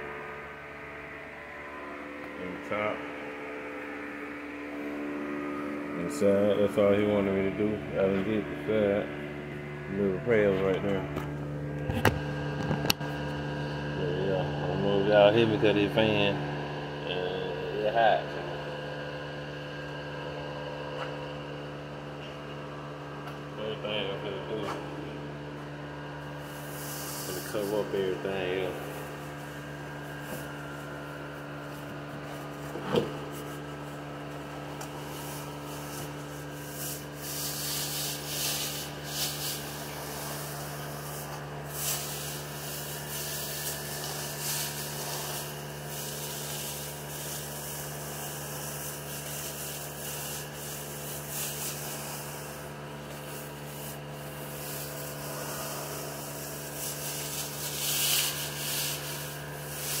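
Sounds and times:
fan humming: 0:00.0 - 1:00.0
sanding strokes: 0:26.5 - 0:28.0, 0:35.0 - 0:52.7, 0:53.6 - 1:00.0.

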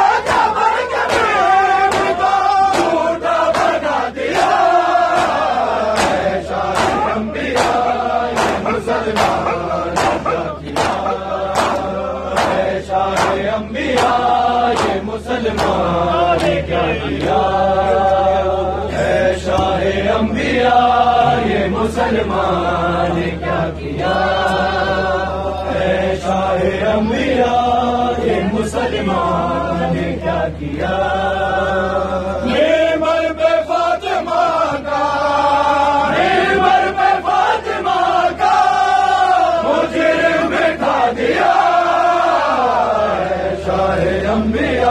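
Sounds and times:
men chanting in unison: 0:00.0 - 0:44.9
hands slapping bare chests: 0:01.9 - 0:03.8, 0:04.4 - 0:15.0, 0:15.6 - 0:15.8.

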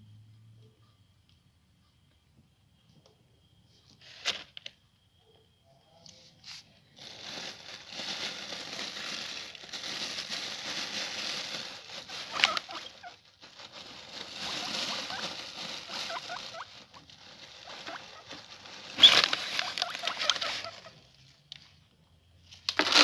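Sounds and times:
paper crinkling and rustling: 0:07.0 - 0:21.0, 0:22.6 - 0:23.0.

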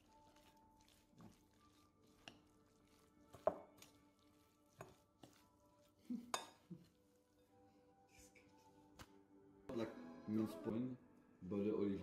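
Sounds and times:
soft squishes of meat mixture: 0:00.0 - 0:09.4
faint soft background music: 0:00.0 - 0:12.0.

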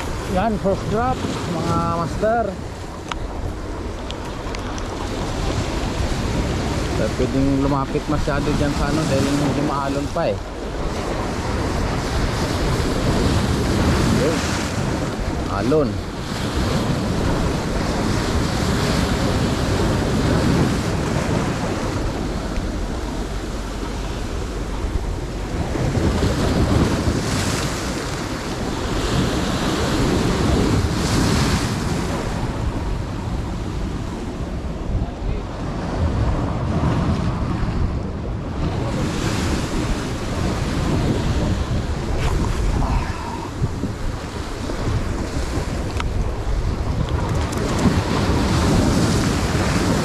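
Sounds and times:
sea waves breaking on rocks: 0:00.0 - 0:50.0
wind buffeting microphone: 0:00.0 - 0:50.0.

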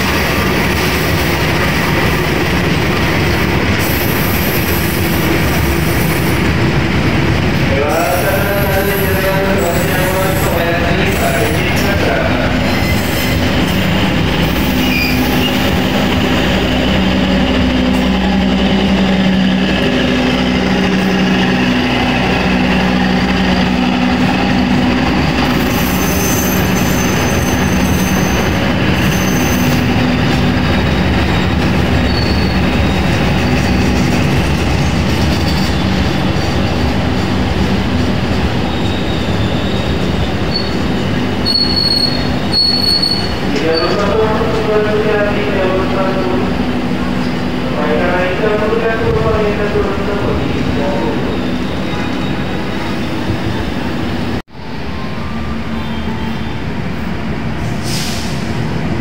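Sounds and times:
train wheels rumbling on rail: 0:00.0 - 0:59.0
high wheel squeal: 0:12.3 - 0:18.4, 0:25.3 - 0:30.0, 0:30.7 - 0:33.9, 0:34.8 - 0:37.6, 0:38.5 - 0:44.1, 0:50.9 - 0:54.2.

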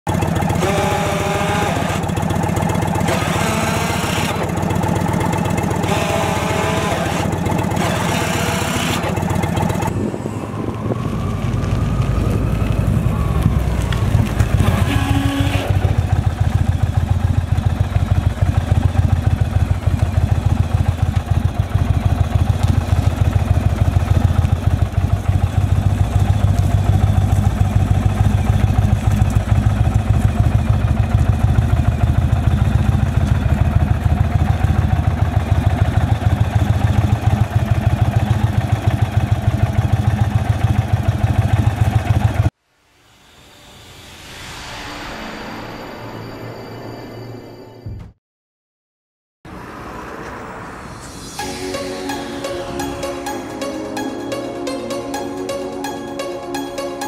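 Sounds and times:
motorcycle engine throbbing: 0:00.1 - 0:42.5.

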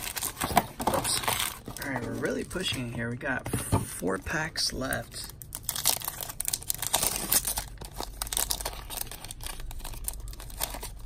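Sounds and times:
foil pack crackling and ripping: 0:05.2 - 0:11.0.

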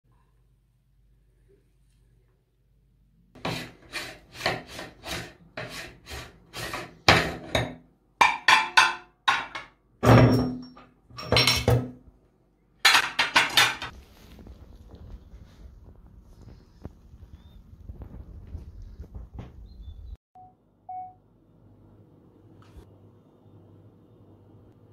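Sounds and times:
metal clanks and ringing: 0:10.1 - 0:11.8.

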